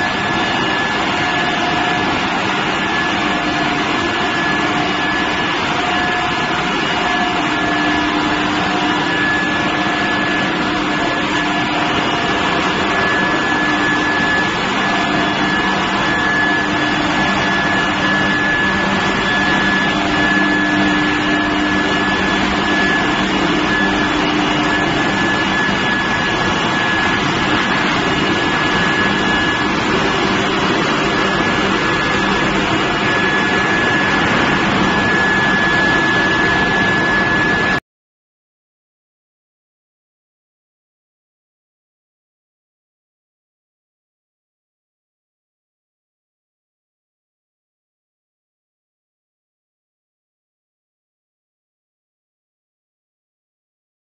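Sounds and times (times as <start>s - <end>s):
high-pitched whine: 0.0s - 37.8s
induction furnace industrial noise: 0.0s - 37.8s
low hum: 0.0s - 37.8s.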